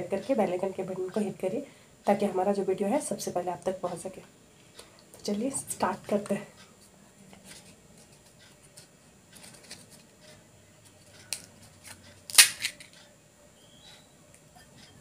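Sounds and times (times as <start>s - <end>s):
loud brittle crunch: 11.3s - 13.0s
fried shell cracking: 12.3s - 12.9s.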